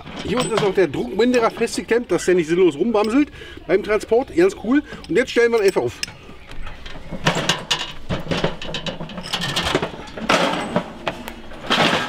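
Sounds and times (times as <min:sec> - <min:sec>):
gas grill rattling and knocking: 0:04.8 - 0:12.0.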